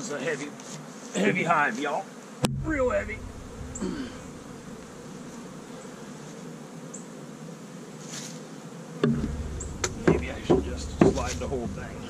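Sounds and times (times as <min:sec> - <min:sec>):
honey bees buzzing: 0:00.0 - 0:12.0
low rumble: 0:02.4 - 0:05.0, 0:09.2 - 0:12.0
knocks on hive box: 0:09.0 - 0:11.8.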